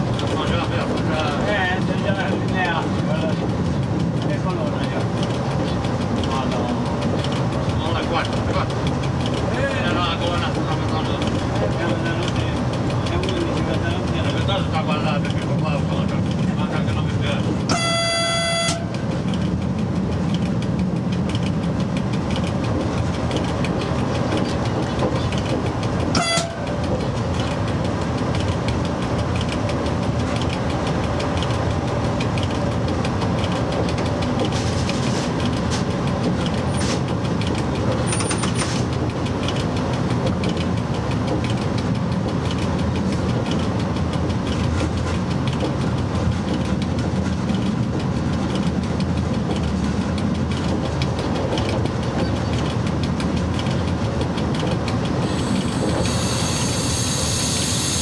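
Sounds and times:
electric locomotive running: 0:00.0 - 0:58.0
locomotive horn toot: 0:17.7 - 0:19.0, 0:26.1 - 0:26.7, 0:55.3 - 0:58.0.

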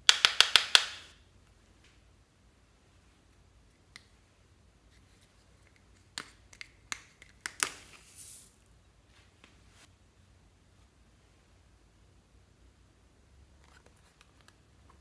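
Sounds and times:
foam beads pouring hiss: 0:07.9 - 0:08.6.

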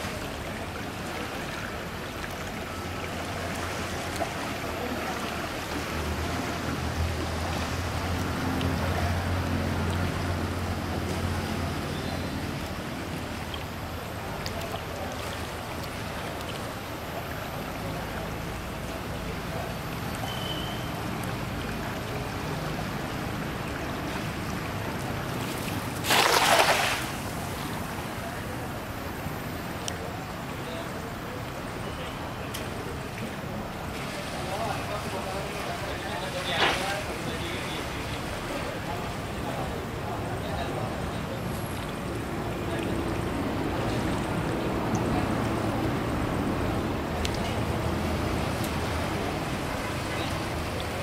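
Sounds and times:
net splashing into water: 0:25.3 - 0:27.8.

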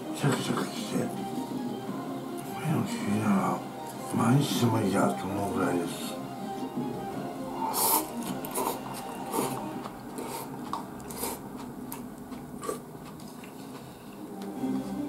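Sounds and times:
soup slurping: 0:07.6 - 0:11.8
chewing: 0:07.6 - 0:14.6.

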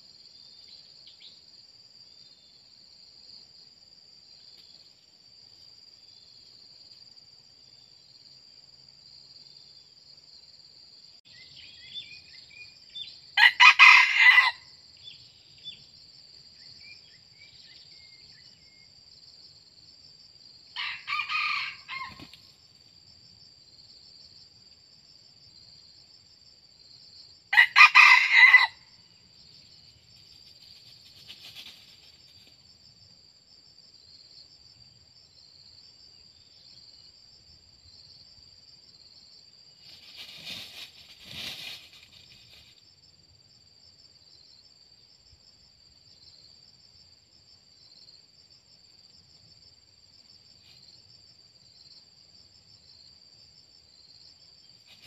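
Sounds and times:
roosters crowing: 0:13.4 - 0:14.6, 0:20.8 - 0:22.3, 0:27.5 - 0:28.8.

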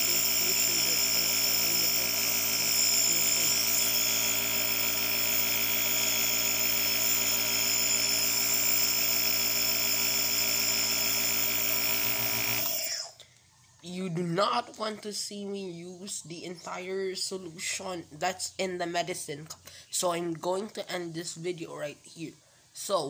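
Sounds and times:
nebulizer compressor humming: 0:00.0 - 0:13.2.

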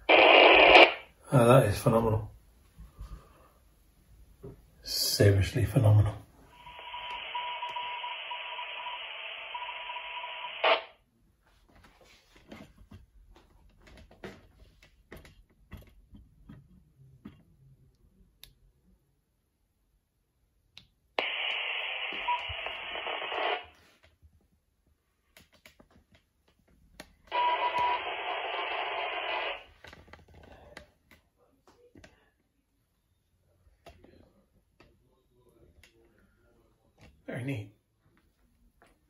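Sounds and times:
noisy radio audio with faint beep: 0:00.0 - 0:01.8, 0:05.3 - 0:11.0, 0:21.2 - 0:23.8, 0:27.3 - 0:29.8
faint clicks and handling noises: 0:11.4 - 0:18.8, 0:23.7 - 0:27.4, 0:29.7 - 0:32.9, 0:33.5 - 0:37.2.

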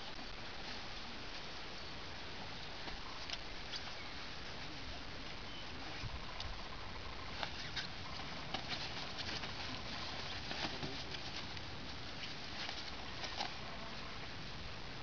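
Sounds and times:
steady background hiss: 0:00.0 - 0:15.0
puppies scratching on fabric: 0:07.2 - 0:13.7.

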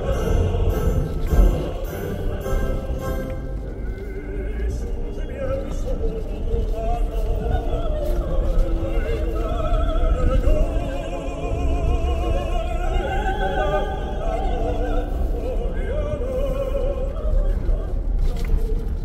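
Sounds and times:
operatic singing with vibrato: 0:00.0 - 0:18.6
steady low rumble: 0:00.0 - 0:19.0.

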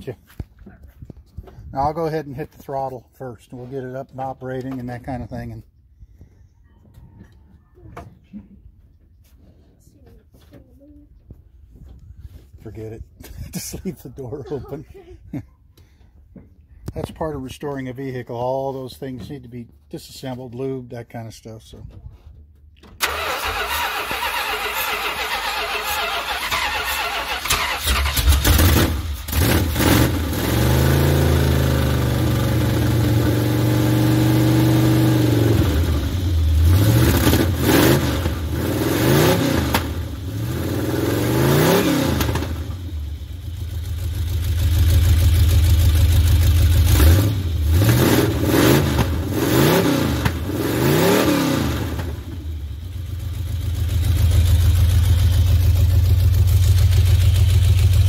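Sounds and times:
starter cranking: 0:23.0 - 0:29.5
engine revving: 0:23.0 - 0:58.0.

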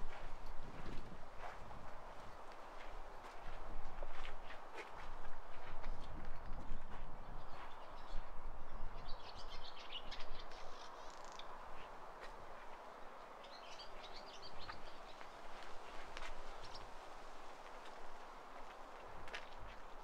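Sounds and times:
bird chirping: 0:07.2 - 0:11.6
outdoor background hiss: 0:08.7 - 0:20.0.

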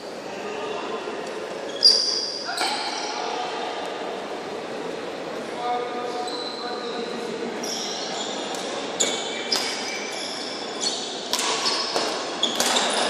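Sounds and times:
shoes squeaking on court floor: 0:01.6 - 0:03.0, 0:07.6 - 0:13.0
rackets hitting shuttlecock: 0:08.5 - 0:09.9, 0:11.3 - 0:13.0.

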